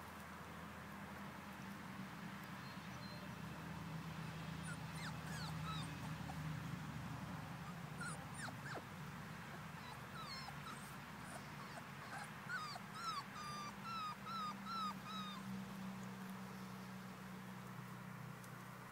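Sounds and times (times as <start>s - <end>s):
puppy whimpering: 4.6s - 8.9s, 9.5s - 15.5s.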